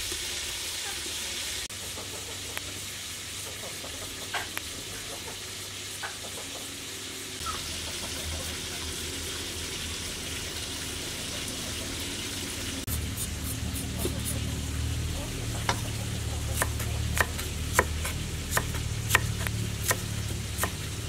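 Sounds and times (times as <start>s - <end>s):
cleaver scraping vegetable skin: 12.9s - 14.4s, 16.6s - 20.9s.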